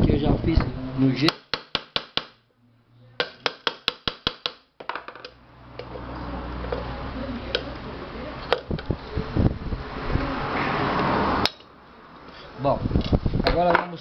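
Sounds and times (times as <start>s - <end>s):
chisel tapping metal rim: 1.2s - 2.4s, 3.2s - 5.9s.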